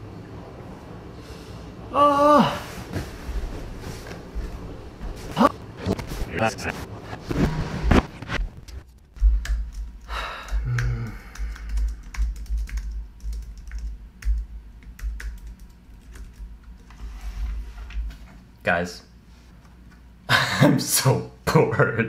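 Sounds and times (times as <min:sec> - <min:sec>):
keyboard keys clicking: 0:09.2 - 0:16.8.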